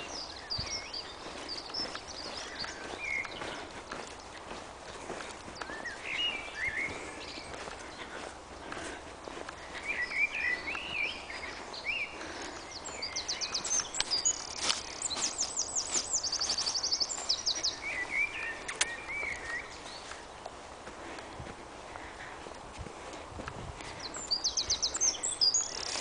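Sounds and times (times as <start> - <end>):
songbird warbling and trilling: 9.8 - 20.2, 24.0 - 26.0
sharp clicks: 18.7 - 18.9.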